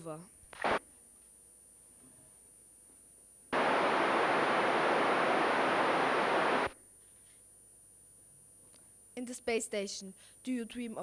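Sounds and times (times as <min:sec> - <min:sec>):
radio static hiss: 0:00.6 - 0:00.8, 0:03.6 - 0:06.8.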